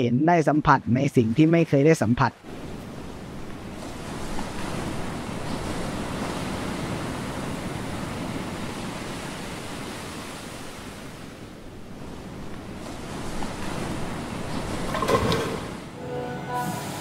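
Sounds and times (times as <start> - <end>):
small waves breaking: 2.4 - 16.0.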